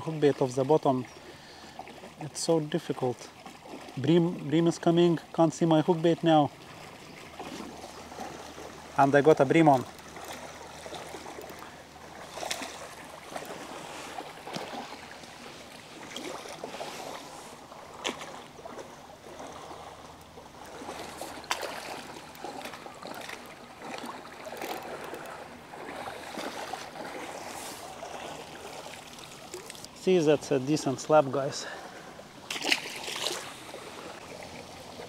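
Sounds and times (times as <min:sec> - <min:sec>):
water sloshing: 0:00.0 - 0:35.0
fish splashing at water surface: 0:10.0 - 0:30.0, 0:32.4 - 0:35.0.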